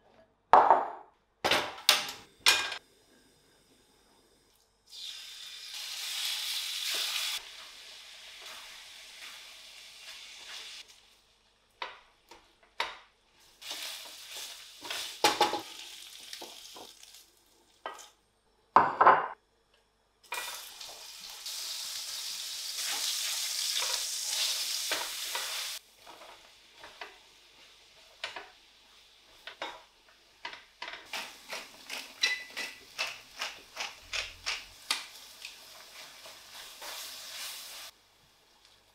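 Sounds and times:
chicken sizzling in a frying pan: 4.9s - 11.3s, 13.4s - 17.8s, 20.3s - 30.4s, 34.5s - 38.9s
pepper mill grinding: 31.1s - 35.0s
wooden spatula scraping a pan: 35.7s - 37.9s.

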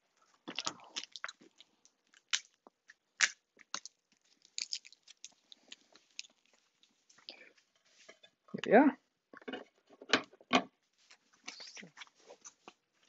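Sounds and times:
tape crackling and tapping: 0.5s - 7.3s.

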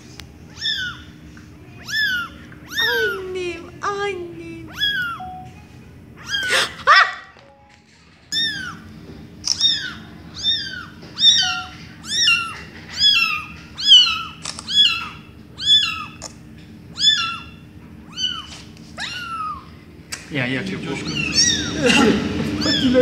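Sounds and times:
kitten mewing: 0.5s - 5.4s, 6.2s - 7.3s, 8.3s - 8.9s, 9.5s - 16.3s, 16.9s - 19.8s, 20.9s - 23.0s.

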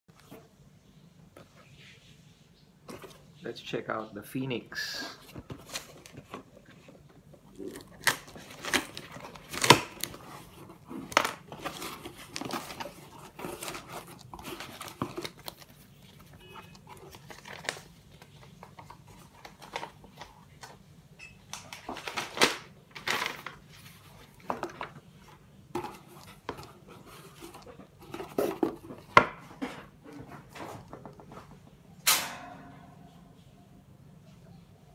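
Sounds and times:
paper rustling: 5.2s - 20.8s, 21.8s - 31.6s
packing tape tearing: 7.5s - 20.0s.

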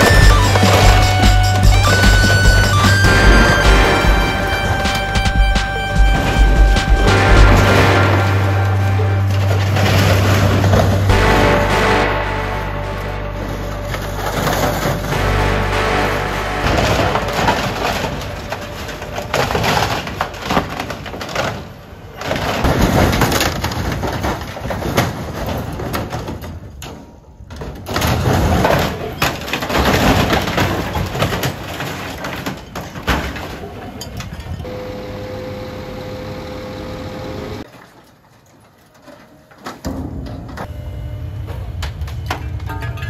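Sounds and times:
steady machine whine: 0.0s - 20.5s, 34.6s - 37.6s
falling debris: 0.0s - 34.7s
sheet metal crunching and ripping: 0.0s - 34.7s.

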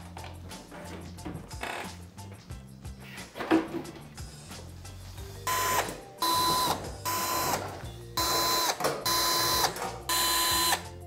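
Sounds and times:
electric screwdriver whine: 5.5s - 10.9s.

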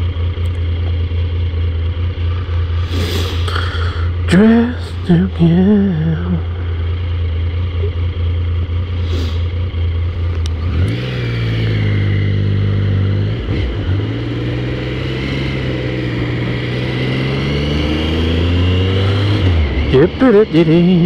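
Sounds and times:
motorcycle engine revving: 0.0s - 21.0s.

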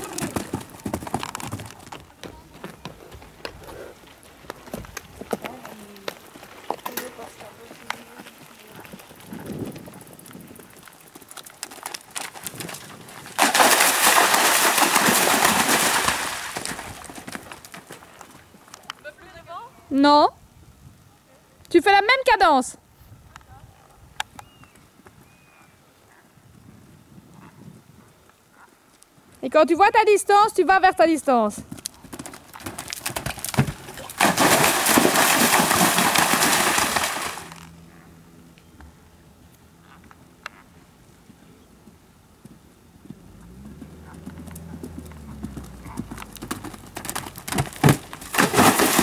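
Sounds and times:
horse hoofbeats cantering: 0.0s - 19.1s, 30.7s - 38.2s, 39.8s - 49.0s
horse splashing through water: 12.1s - 18.2s, 32.3s - 37.6s, 43.4s - 49.0s.

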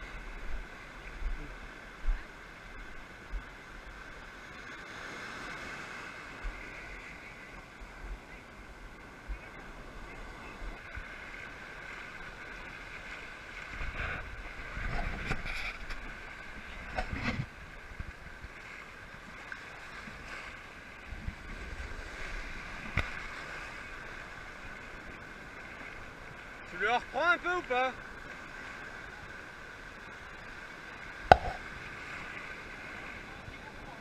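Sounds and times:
ocean surf washing: 0.0s - 34.0s
sharp knock: 31.3s - 31.6s.

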